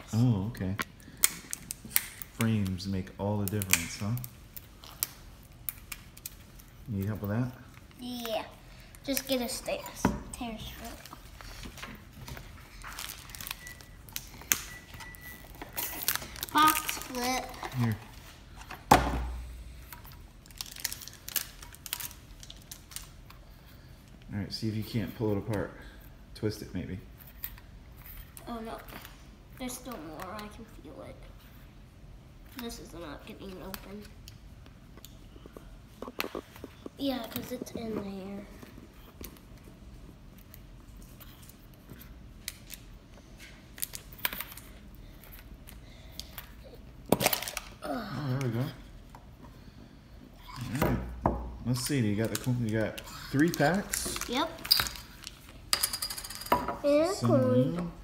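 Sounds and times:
plastic wrapper crinkling: 10.9 - 18.3, 20.4 - 23.3, 51.8 - 55.6.

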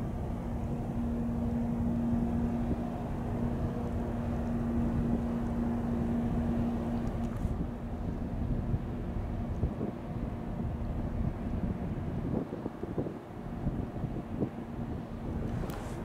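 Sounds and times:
ship engines droning: 0.0 - 16.0
wind on microphone: 6.3 - 16.0.

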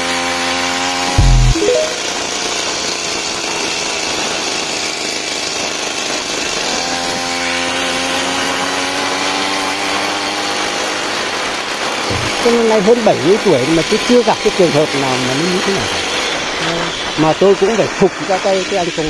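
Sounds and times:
loud low thump: 1.2 - 1.6
small engine running under throttle: 3.8 - 11.2.

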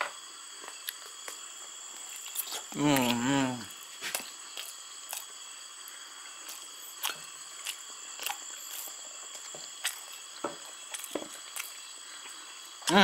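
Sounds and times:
crickets chirring: 0.0 - 13.0
person chewing: 0.8 - 13.0.

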